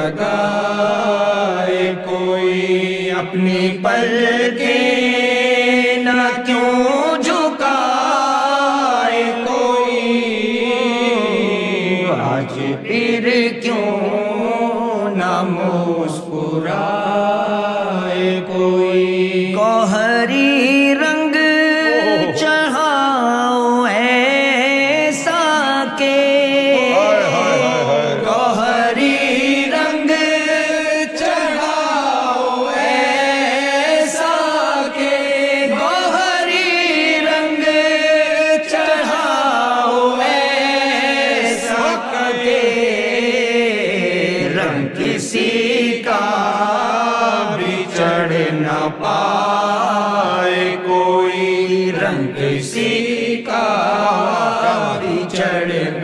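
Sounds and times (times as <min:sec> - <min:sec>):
man singing: 0:00.0 - 0:32.3.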